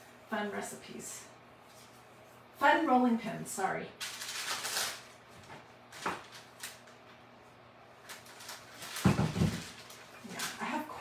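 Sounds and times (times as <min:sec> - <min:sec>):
paper rustling: 0:04.0 - 0:07.1, 0:08.0 - 0:10.8.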